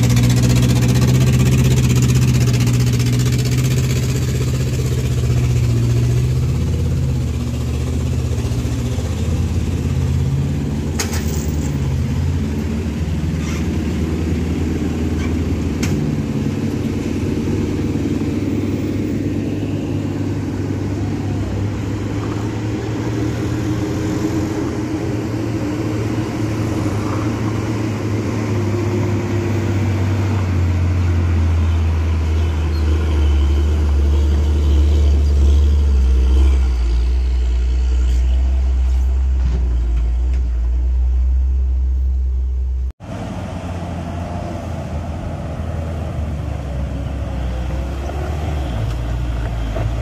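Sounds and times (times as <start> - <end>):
diesel truck engine climbing: 0.0 - 50.0
second truck diesel climbing: 0.0 - 50.0.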